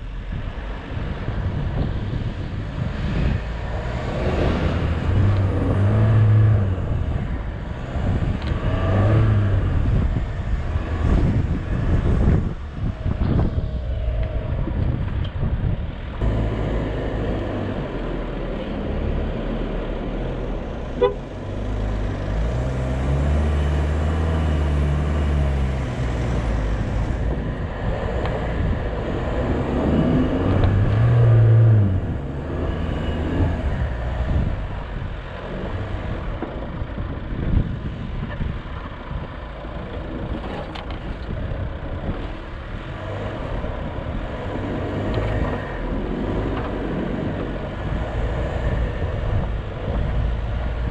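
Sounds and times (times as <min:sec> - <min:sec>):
wind noise: 0:00.0 - 0:50.9
car engine revving: 0:02.7 - 0:36.5.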